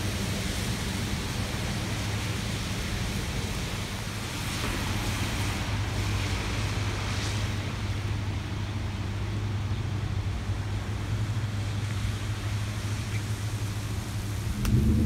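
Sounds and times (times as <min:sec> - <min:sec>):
traffic on wet road: 0:00.0 - 0:15.0
wind on microphone: 0:14.2 - 0:15.0.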